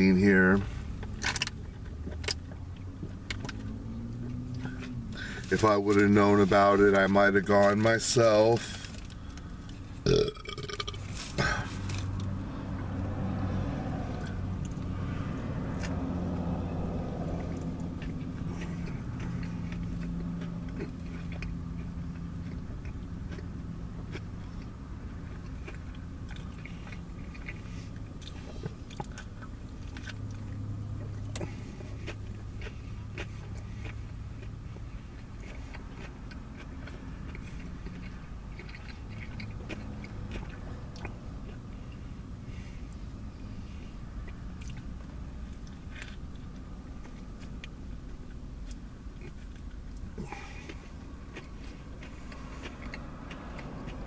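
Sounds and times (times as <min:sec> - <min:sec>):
chewing and biting sandwich: 0:00.0 - 0:07.9, 0:08.6 - 0:54.0
low car cabin hum: 0:00.0 - 0:54.0.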